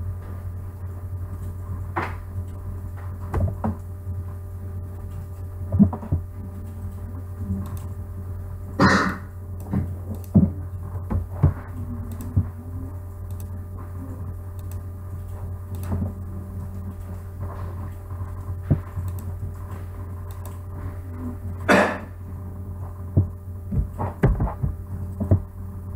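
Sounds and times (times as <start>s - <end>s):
electrical hum: 0.0s - 25.9s
computer mouse clicks: 7.6s - 8.0s, 9.6s - 10.4s, 11.4s - 12.4s, 13.3s - 13.6s, 14.5s - 16.1s, 18.3s - 20.6s.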